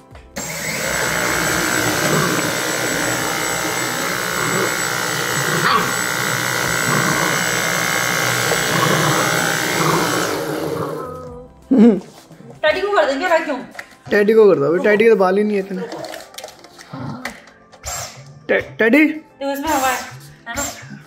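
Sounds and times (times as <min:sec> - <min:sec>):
cordless vacuum running: 0:00.4 - 0:11.4.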